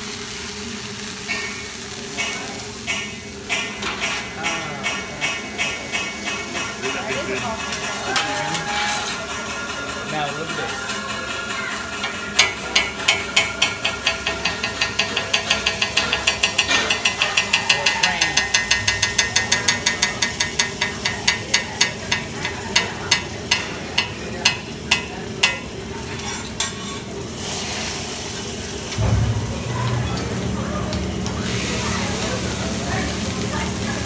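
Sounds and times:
griddle sizzling: 0:00.0 - 0:34.0
metal utensils clacking on griddle: 0:00.9 - 0:27.7, 0:28.3 - 0:34.0
thump: 0:29.0 - 0:29.4.

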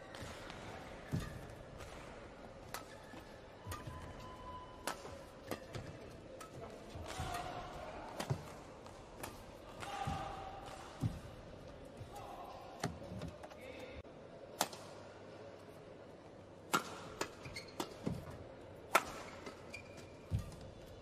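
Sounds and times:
racket hitting shuttlecock: 0:00.1 - 0:11.3, 0:14.6 - 0:14.9, 0:16.7 - 0:20.6
shoe squeaks on court floor: 0:17.4 - 0:18.1, 0:19.4 - 0:20.6.

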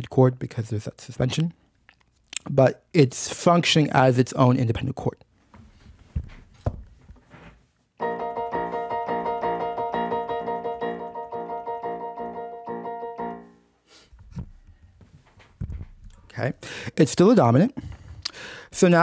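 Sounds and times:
soft knocks: 0:06.1 - 0:07.5
piano chord struck repeatedly: 0:08.0 - 0:13.7.

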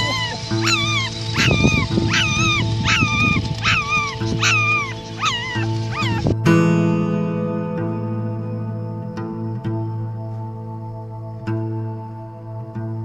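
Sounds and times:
puppy whimpering yelps: 0:00.0 - 0:06.3
background music: 0:00.0 - 0:13.0.

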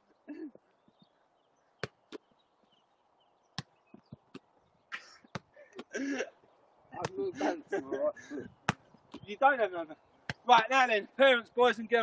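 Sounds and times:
football being kicked: 0:01.8 - 0:02.3, 0:03.6 - 0:04.5, 0:05.3 - 0:05.6, 0:08.6 - 0:09.3.

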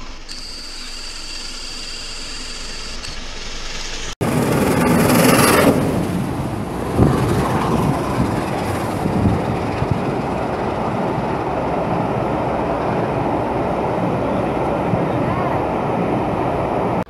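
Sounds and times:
train wheels rumbling on rails: 0:03.5 - 0:17.0.

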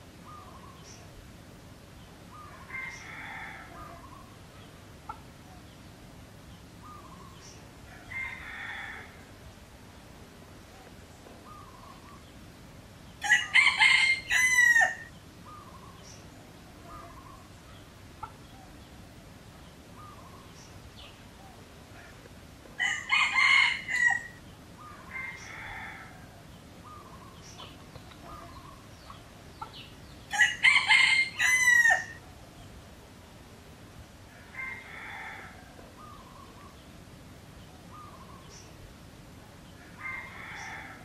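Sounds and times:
roosters crowing: 0:02.3 - 0:04.4, 0:06.8 - 0:09.4, 0:13.2 - 0:16.2, 0:21.9 - 0:32.2, 0:34.3 - 0:36.7, 0:39.7 - 0:41.0
faint short bird calls: 0:26.8 - 0:29.9.

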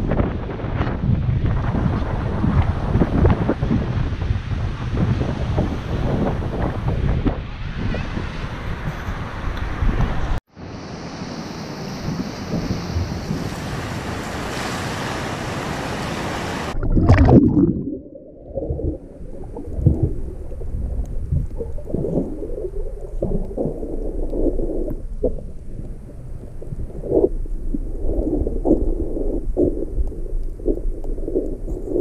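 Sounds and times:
wind on microphone: 0:00.0 - 0:10.4, 0:11.9 - 0:32.0
surf washing onto beach: 0:00.0 - 0:17.5
muffled underwater sloshing: 0:16.7 - 0:32.0.

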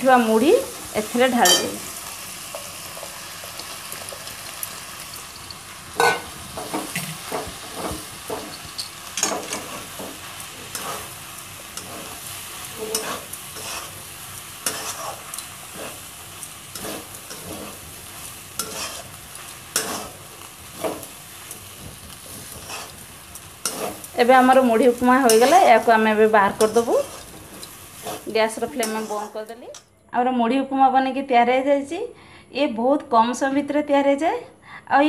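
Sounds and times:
oil sizzling: 0:00.0 - 0:29.8
metal spatula scraping wok: 0:01.3 - 0:12.2, 0:12.8 - 0:21.2, 0:22.0 - 0:29.5.

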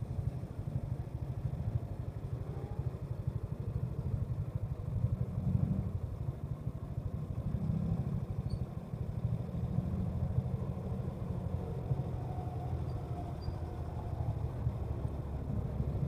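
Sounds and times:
motorcycle engine idling: 0:00.0 - 0:12.1.

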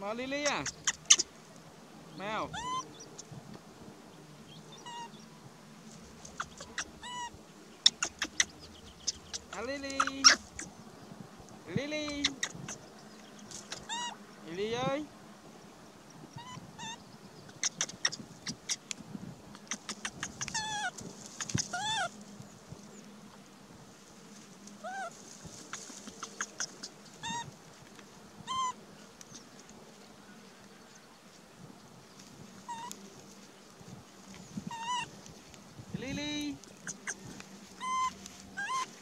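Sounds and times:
dry grass crackling: 0:00.0 - 0:14.6, 0:16.2 - 0:39.0
baby monkey squeaky calls: 0:00.3 - 0:01.3, 0:02.5 - 0:03.3, 0:04.7 - 0:05.2, 0:06.2 - 0:10.7, 0:12.0 - 0:12.9, 0:13.5 - 0:14.2, 0:16.3 - 0:18.9, 0:19.6 - 0:22.1, 0:24.8 - 0:27.6, 0:28.4 - 0:29.4, 0:32.7 - 0:33.0, 0:34.6 - 0:35.1, 0:36.7 - 0:39.0.

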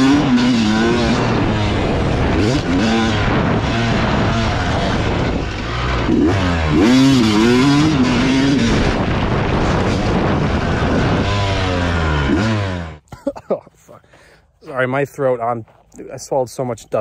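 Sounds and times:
dirt bike engine revving: 0:00.0 - 0:13.1
wind on microphone: 0:00.1 - 0:12.4.

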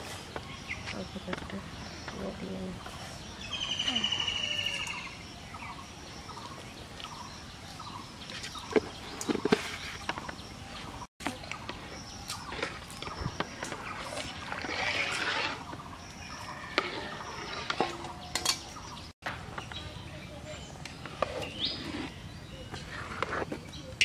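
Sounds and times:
birds calling: 0:00.0 - 0:24.0
rustling scraping: 0:08.3 - 0:18.9, 0:21.0 - 0:23.8.

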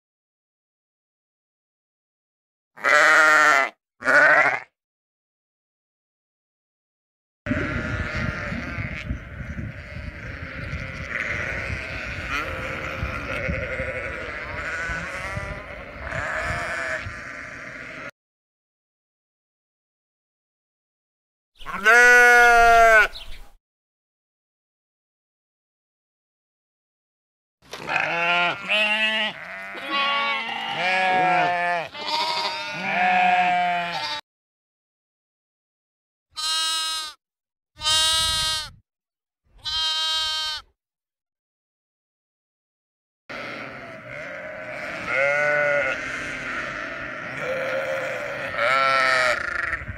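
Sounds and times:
sheep bleating: 0:02.8 - 0:04.8, 0:07.5 - 0:18.1, 0:21.6 - 0:23.2, 0:27.7 - 0:34.2, 0:36.4 - 0:37.2, 0:37.8 - 0:38.8, 0:39.6 - 0:40.7, 0:43.3 - 0:49.9.

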